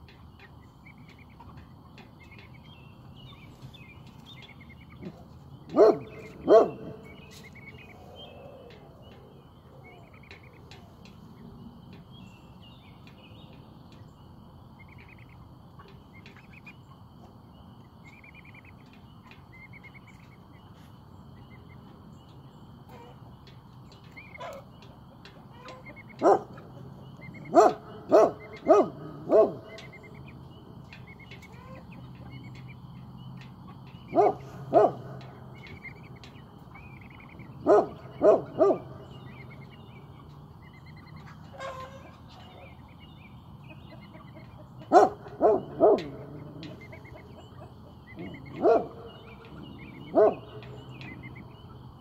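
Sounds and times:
birds chirping faintly: 0.0s - 52.0s
dog barking loudly: 5.7s - 7.0s, 26.2s - 26.6s, 27.4s - 29.8s, 34.1s - 35.2s, 37.6s - 39.2s, 44.9s - 46.4s, 48.2s - 49.3s, 50.1s - 50.6s.

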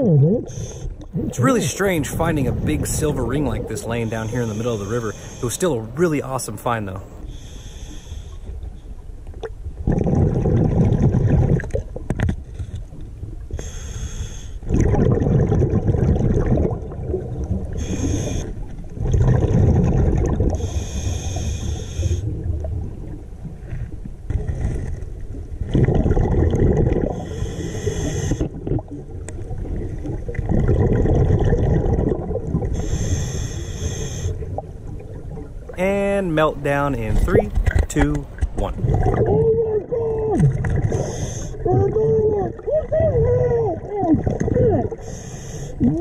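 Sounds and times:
exhaled bubbles rushing: 0.0s - 5.1s, 9.8s - 12.2s, 14.6s - 20.7s, 25.6s - 27.4s, 28.4s - 33.0s, 34.4s - 45.0s
regulator hissing inhales: 4.0s - 5.6s, 7.2s - 8.4s, 13.6s - 14.6s, 32.8s - 34.4s, 40.9s - 41.6s, 45.0s - 45.8s.

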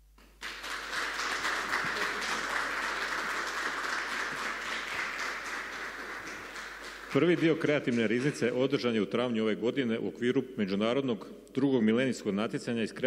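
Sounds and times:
audience applauding: 0.4s - 8.4s.

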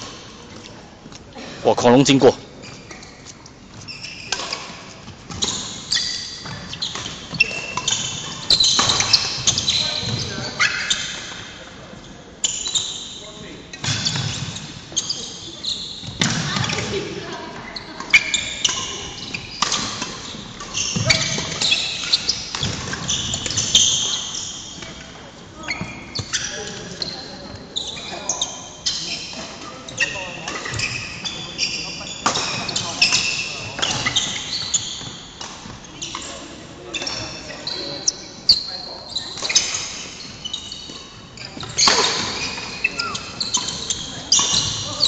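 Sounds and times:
shoes squeaking on floor: 0.0s - 45.0s
rackets hitting shuttlecock: 19.6s - 25.0s.

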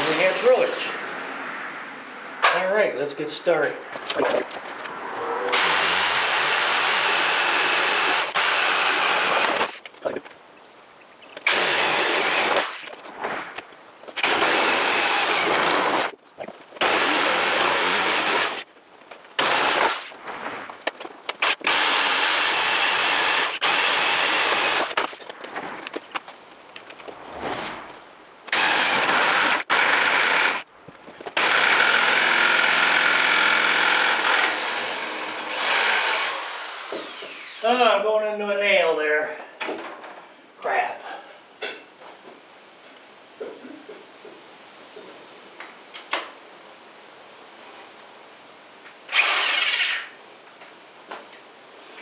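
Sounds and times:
electric drill boring wood: 5.5s - 9.8s, 11.5s - 12.8s, 14.2s - 16.1s, 16.8s - 18.6s, 19.4s - 20.1s, 21.4s - 25.1s, 28.5s - 30.6s, 31.4s - 37.6s, 49.1s - 50.2s.

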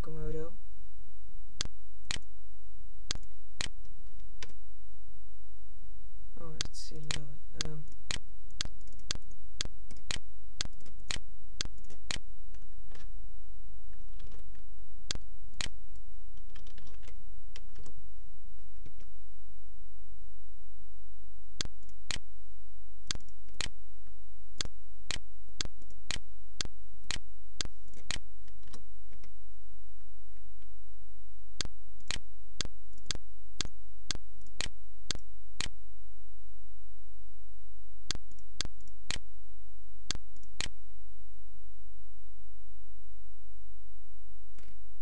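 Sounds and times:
steady low hum: 0.0s - 45.0s
sharp computer clicks: 1.6s - 2.3s, 3.1s - 4.6s, 6.6s - 13.0s, 15.1s - 15.8s, 16.4s - 17.9s, 23.1s - 23.7s, 24.6s - 29.3s, 31.6s - 35.7s.

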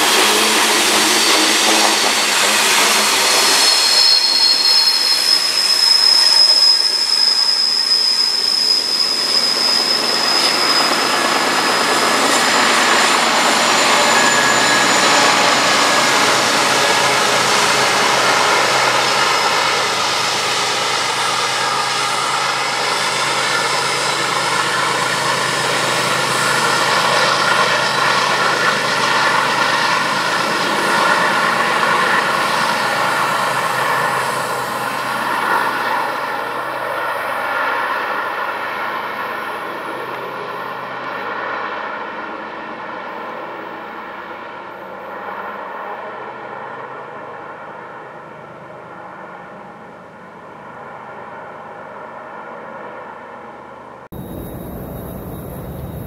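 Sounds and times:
train boxcars rolling: 0.0s - 35.9s, 54.2s - 56.0s
high-pitched wheel squeal: 0.0s - 38.5s, 54.2s - 56.0s
diesel locomotive engine drone: 0.0s - 56.0s.

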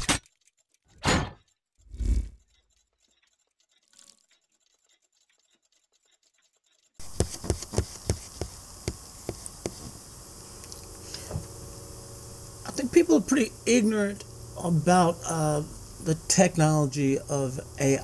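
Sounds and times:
sharp taps: 7.0s - 9.8s
room hiss: 7.0s - 18.0s.

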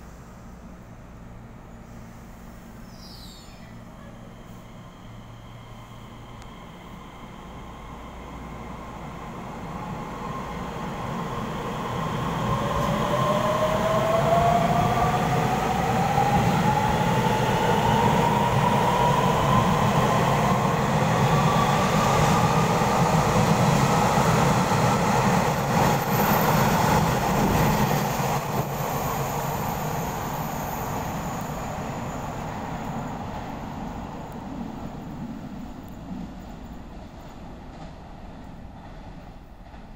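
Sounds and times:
train cars rumbling past: 0.0s - 39.9s.

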